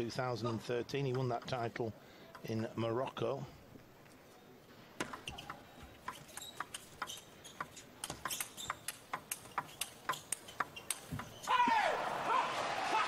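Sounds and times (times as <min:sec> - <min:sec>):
table tennis ball clicking: 0:05.0 - 0:11.4.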